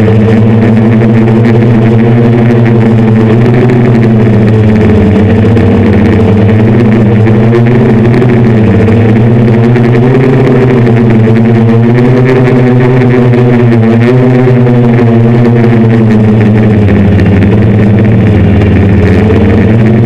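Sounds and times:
drone motors droning in flight: 0.0s - 20.0s.

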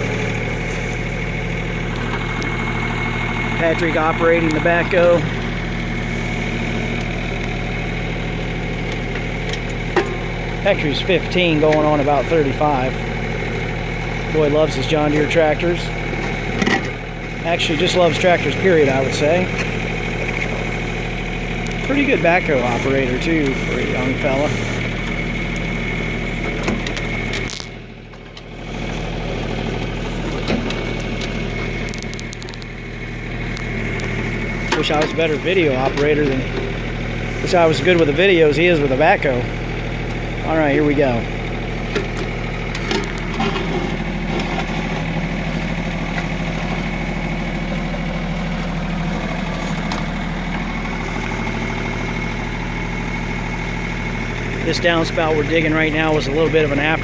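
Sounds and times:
backhoe digging and dumping soil: 0.0s - 57.0s
diesel tractor engine running: 0.0s - 57.0s
steady high whine: 16.6s - 47.7s.

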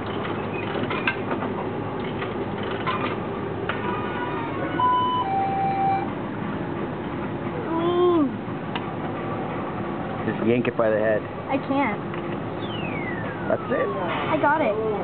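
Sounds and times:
steady low hum: 0.0s - 15.0s
crane game electronic beeps: 4.7s - 6.1s, 12.6s - 14.8s.

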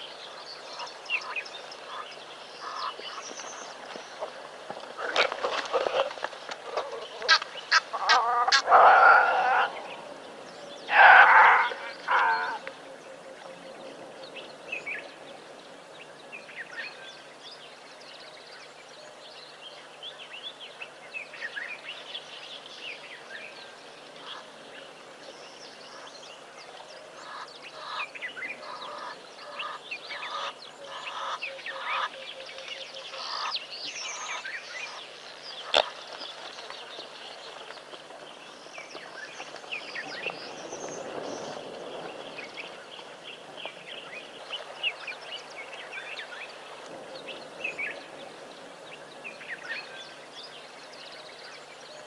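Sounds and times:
repeated bird calls: 0.0s - 4.4s, 5.0s - 17.4s, 19.8s - 52.0s
birds chirping: 0.0s - 52.0s.

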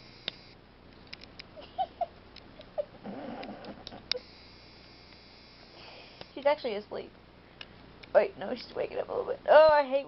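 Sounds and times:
dog low grumble: 3.0s - 4.1s.

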